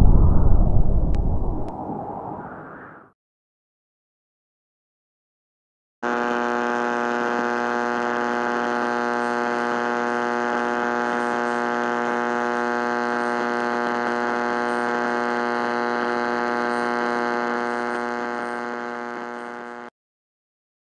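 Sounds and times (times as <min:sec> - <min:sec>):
low electronic buzz: 0:00.0 - 0:02.2, 0:06.0 - 0:19.9.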